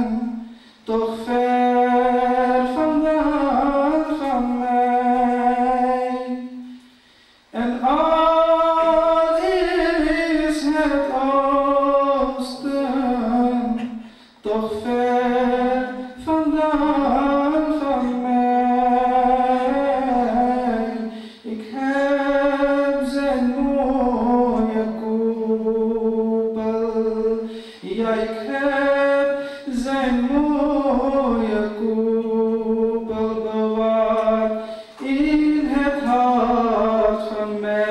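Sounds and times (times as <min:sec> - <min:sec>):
man singing unaccompanied: 0:00.0 - 0:06.7, 0:07.5 - 0:37.9.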